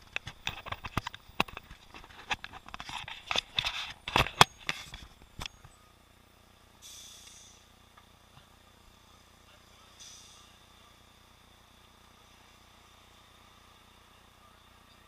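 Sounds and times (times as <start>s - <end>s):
camera rattling in housing: 0.0s - 5.5s
faint hiss: 6.4s - 15.0s.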